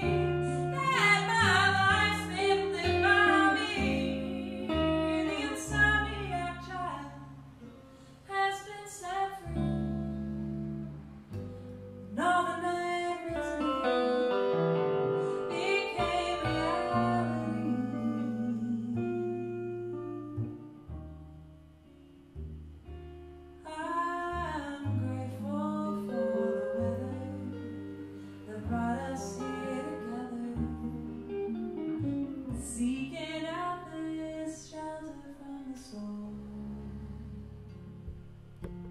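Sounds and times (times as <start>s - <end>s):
woman singing: 0.0s - 7.3s, 8.3s - 9.9s, 12.1s - 14.1s, 15.2s - 20.1s, 23.6s - 31.6s, 32.5s - 37.8s
plucked double bass: 0.0s - 8.0s, 9.3s - 34.7s, 35.7s - 38.9s
electric guitar chords: 0.0s - 34.4s.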